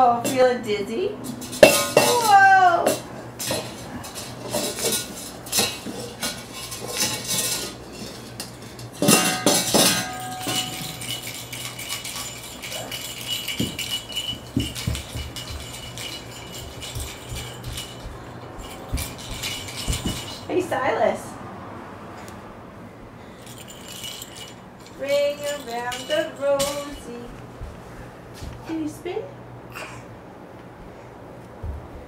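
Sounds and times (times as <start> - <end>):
steel bowl clanging on wooden floor: 1.4 - 20.5.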